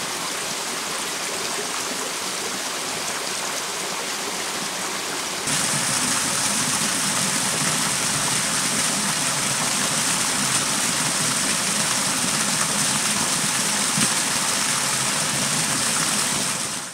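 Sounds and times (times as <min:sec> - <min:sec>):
waterfall splashing into pool: 0:04.2 - 0:16.9.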